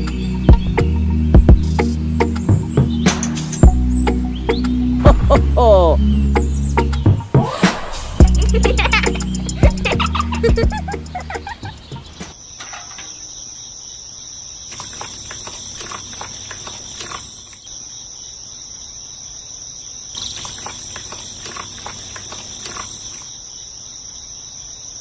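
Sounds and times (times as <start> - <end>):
high-pitched insect trill: 12.4 - 25.0.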